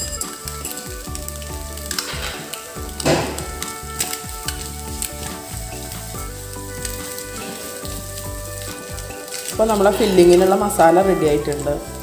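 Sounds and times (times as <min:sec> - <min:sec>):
filling sizzling in a pan: 0:00.0 - 0:12.0
wooden spatula scraping pan: 0:06.8 - 0:11.6.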